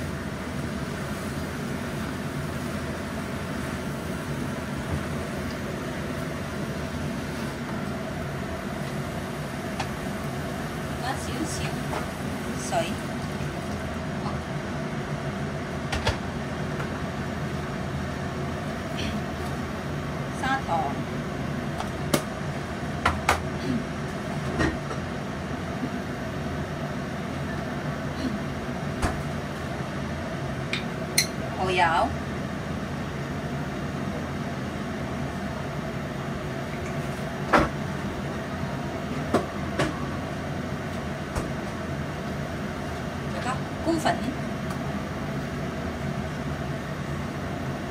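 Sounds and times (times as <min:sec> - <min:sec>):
stir-fry sizzling in a wok: 0:00.0 - 0:23.0
pot boiling: 0:00.0 - 0:47.9.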